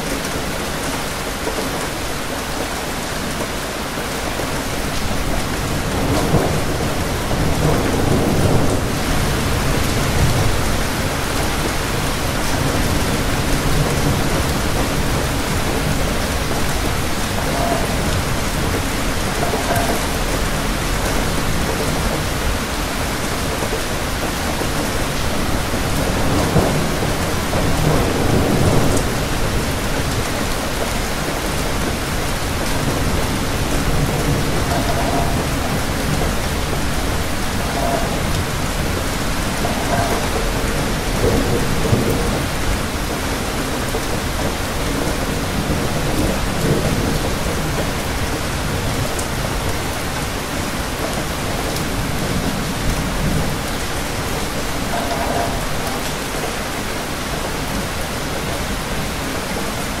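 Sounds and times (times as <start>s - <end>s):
steady rain falling: 0.0s - 60.0s
thunder rumbles: 0.1s - 60.0s.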